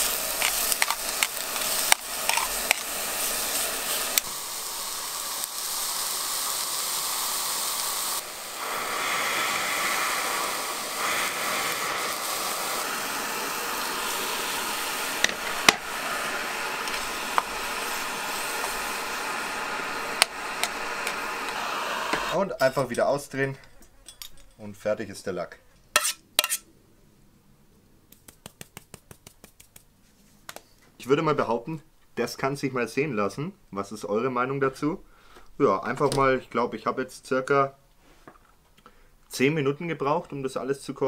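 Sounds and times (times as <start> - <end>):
food sizzling in a frying pan: 0.0 - 22.4
gas burner hissing: 0.0 - 23.8.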